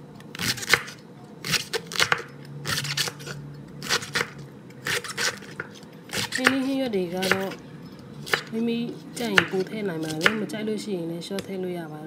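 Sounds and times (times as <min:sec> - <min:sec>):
knife slicing cabbage on board: 0:00.3 - 0:07.6, 0:08.2 - 0:10.5.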